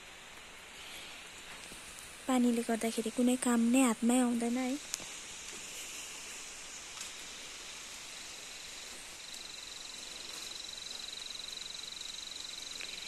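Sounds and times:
faint outdoor hiss: 0.0 - 13.0
insect trilling: 5.8 - 13.0.

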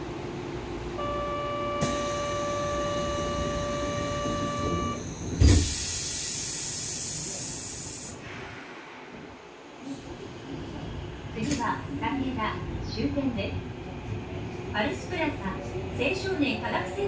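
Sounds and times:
steady warning tone: 1.0 - 5.4
train doors shutting with a thud: 1.5 - 9.4
loud hiss of air: 5.2 - 9.3.

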